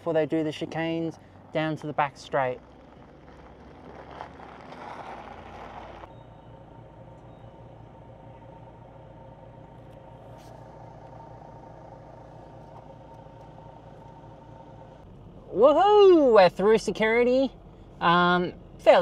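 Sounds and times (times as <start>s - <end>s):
car engine idling: 0.0s - 19.0s
faint steady whine: 5.5s - 19.0s.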